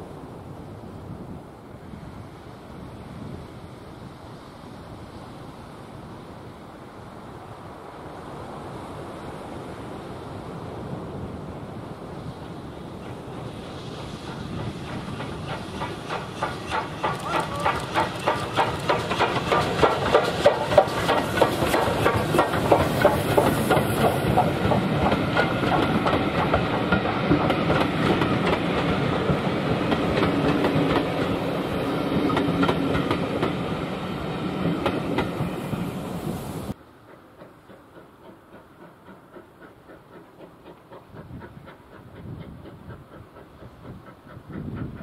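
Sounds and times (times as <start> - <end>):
train wheels clicking over rail joints: 12.4 - 45.0.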